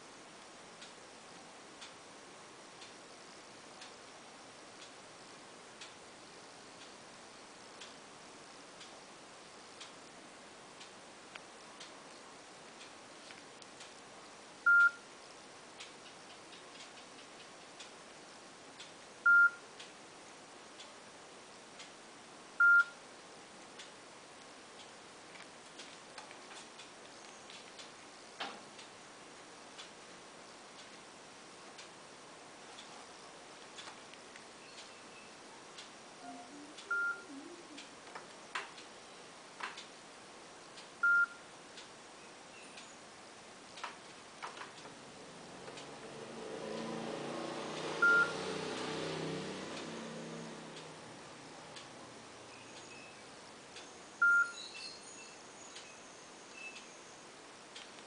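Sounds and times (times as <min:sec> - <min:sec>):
faint ticking: 0:00.0 - 0:54.6
faint clicks: 0:10.8 - 0:14.1, 0:15.8 - 0:18.0, 0:23.8 - 0:29.0, 0:32.7 - 0:35.0, 0:39.6 - 0:40.0, 0:57.7 - 0:58.0
phone short beeps: 0:14.7 - 0:15.0, 0:19.3 - 0:19.6, 0:22.6 - 0:22.9, 0:36.3 - 0:37.3, 0:41.0 - 0:41.4, 0:54.2 - 0:54.6.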